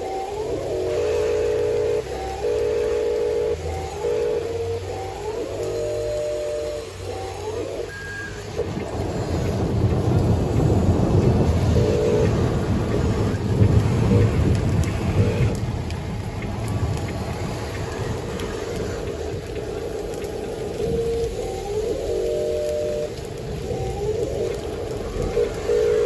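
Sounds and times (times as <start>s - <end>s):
rain hissing: 0.0s - 26.0s
rolling thunder: 8.0s - 26.0s.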